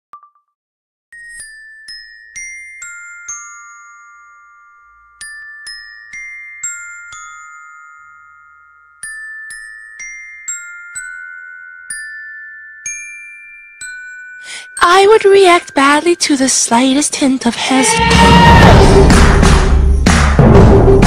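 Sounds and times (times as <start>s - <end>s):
glockenspiel melody: 1.1s - 17.9s.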